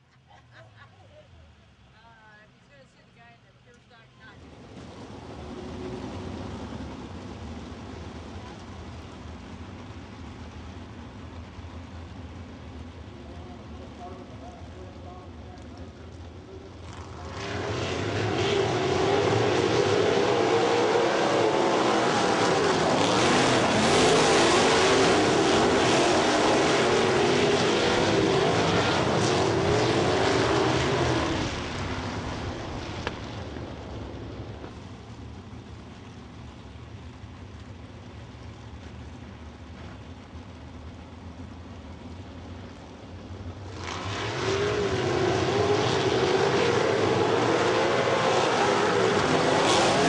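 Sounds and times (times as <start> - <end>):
racing car engines passing: 4.3 - 35.3, 42.0 - 50.0.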